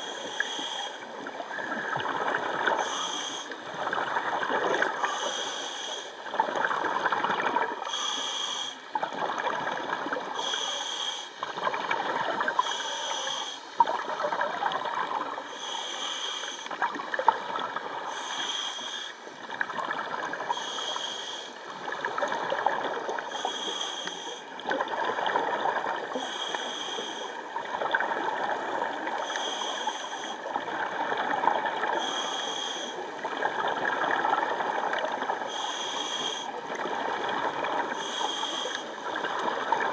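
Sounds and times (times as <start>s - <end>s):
regulator hissing inhalation: 0.0s - 1.0s, 2.8s - 3.6s, 5.0s - 6.2s, 7.8s - 8.9s, 10.4s - 11.4s, 12.6s - 13.8s, 15.5s - 16.7s, 18.1s - 19.3s, 20.5s - 21.6s, 23.3s - 24.5s, 26.2s - 27.3s, 29.2s - 30.4s, 32.0s - 33.0s, 35.5s - 36.5s, 38.0s - 39.0s.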